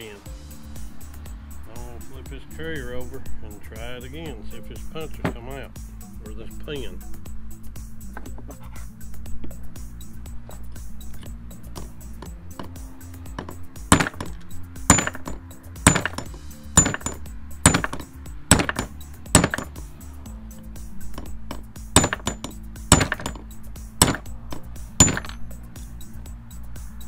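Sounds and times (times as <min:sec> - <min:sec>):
hammer tapping steel punch: 0:11.7 - 0:19.8, 0:21.1 - 0:25.4.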